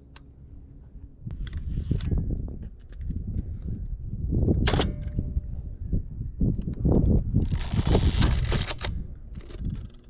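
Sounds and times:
camera knobs clicking: 6.7s - 10.0s.

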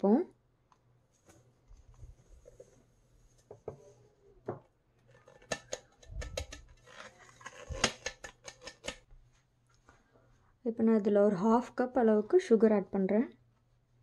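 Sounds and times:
metal jar tapping and scraping: 5.1s - 9.0s.

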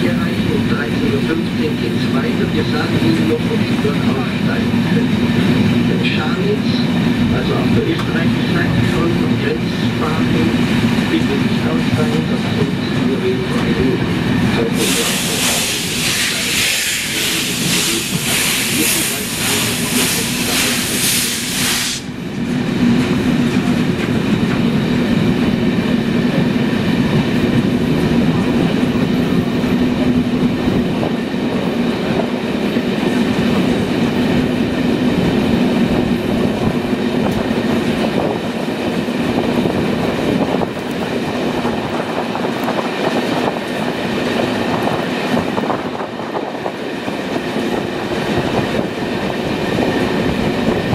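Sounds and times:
loud pulsing hiss: 14.6s - 22.1s.

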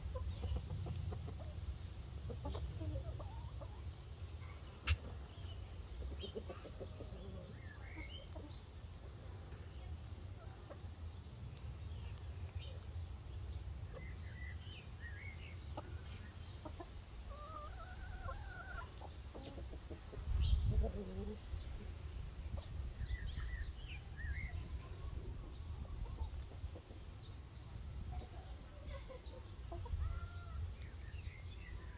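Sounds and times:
chickens clucking: 0.0s - 31.9s.

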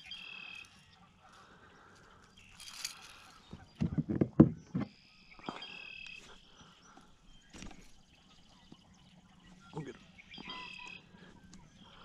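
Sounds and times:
handling rustle: 2.4s - 3.5s.

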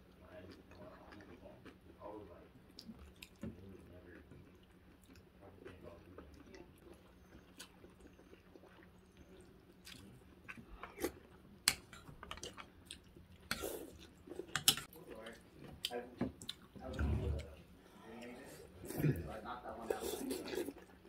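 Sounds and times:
quiet chewing: 0.1s - 19.2s
cutlery clicking against bowl: 14.5s - 14.9s.

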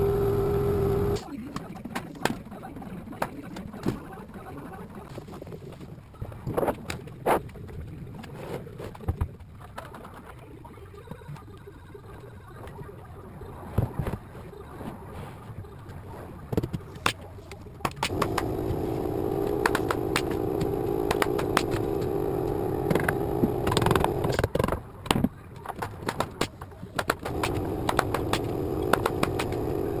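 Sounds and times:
steady mechanical drone: 0.0s - 1.3s, 17.9s - 24.8s, 26.9s - 30.0s
sharp clicks and knocks: 17.8s - 30.0s.

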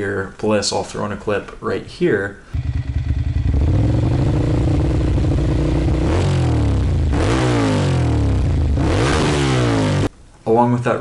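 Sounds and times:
motorcycle engine idling and revving: 2.6s - 10.1s.

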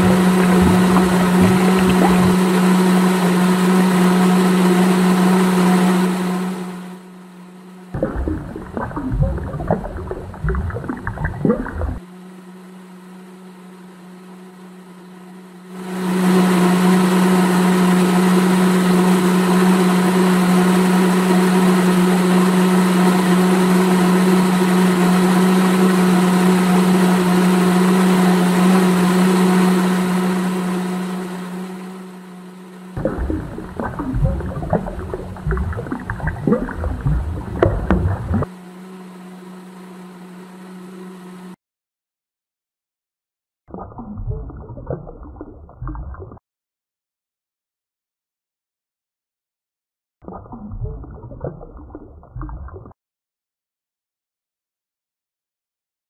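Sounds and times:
wet concrete slopping: 0.0s - 2.5s, 8.0s - 12.0s, 33.0s - 38.5s
small electric motor humming: 0.0s - 41.6s.

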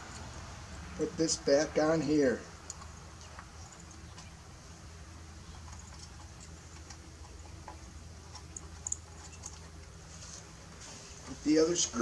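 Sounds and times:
low background hum: 0.0s - 12.0s
metal hardware clicks and taps: 2.6s - 4.4s, 5.5s - 9.9s.

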